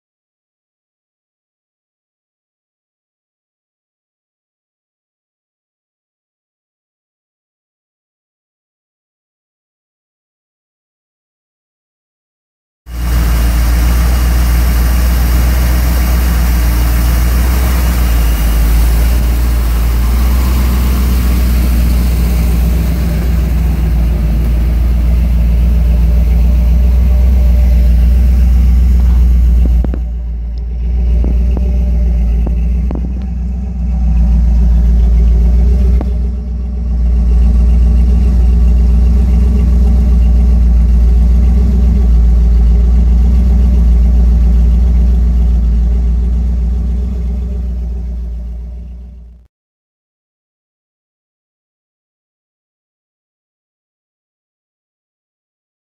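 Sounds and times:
engine running steadily: 12.9 - 49.4.

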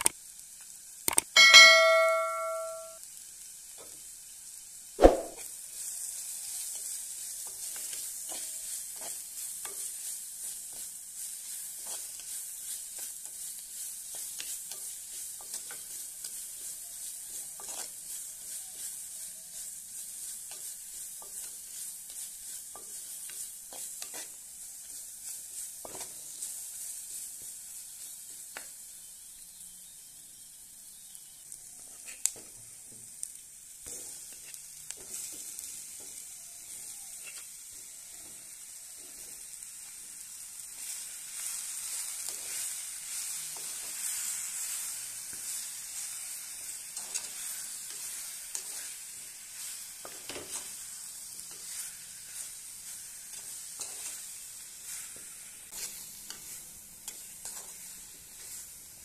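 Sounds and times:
food sizzling in oil: 0.0 - 59.0
sharp knock: 5.0 - 5.4
wooden spoon knocking and scraping pot: 17.3 - 18.9.

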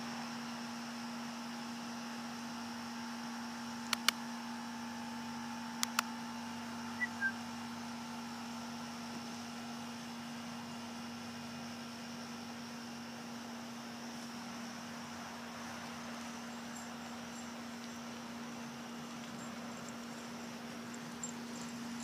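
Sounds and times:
machine hum with hiss: 0.0 - 22.0
sharp clicks: 3.8 - 4.2, 5.8 - 6.1
short high chirps: 7.0 - 7.4.

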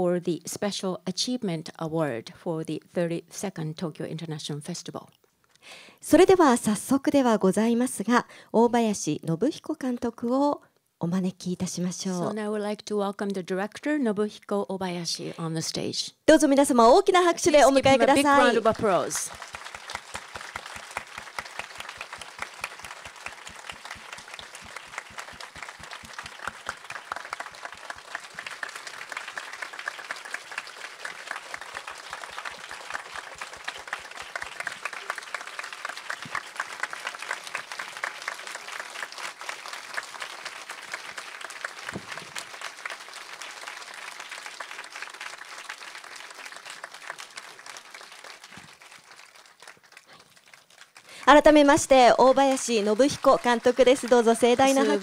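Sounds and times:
audience applauding: 17.4 - 55.0.

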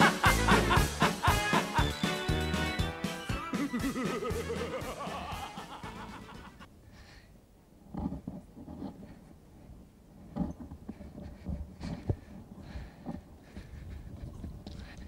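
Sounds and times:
stage music: 0.0 - 6.7.

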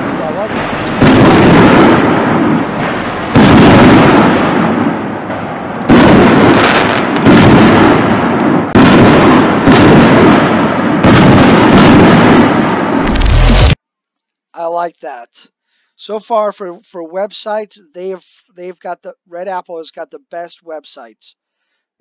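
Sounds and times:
firework shells bursting: 0.0 - 13.8.

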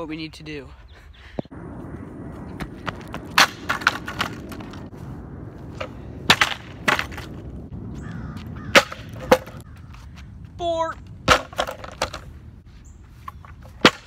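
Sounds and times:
low outdoor rumble: 1.4 - 11.3
longboard clattering on concrete: 3.2 - 4.8, 5.8 - 7.4, 8.7 - 9.6, 11.2 - 12.3.

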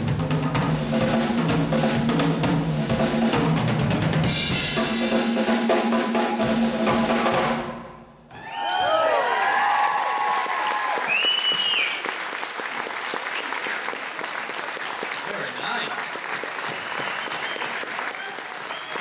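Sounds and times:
drum solo: 0.0 - 8.2
audience cheering: 8.3 - 19.0.

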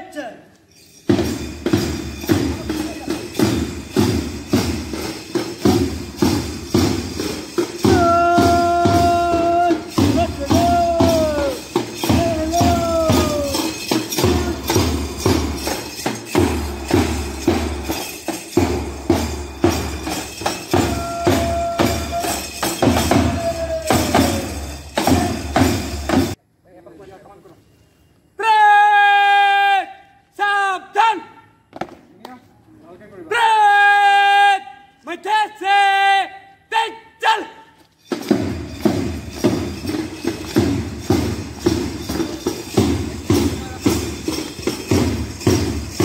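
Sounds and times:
tambourine-like beat: 0.7 - 26.4, 37.9 - 46.0.

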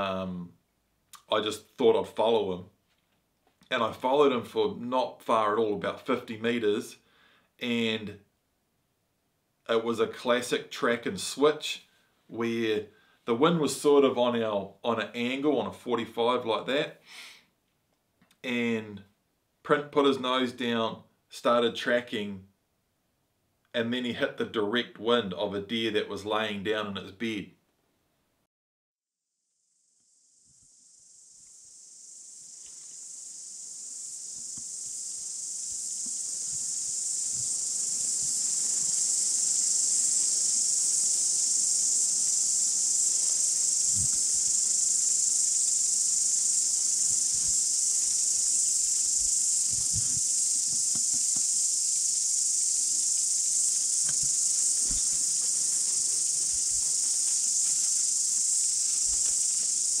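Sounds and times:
high-pitched insect chorus: 29.7 - 60.0.

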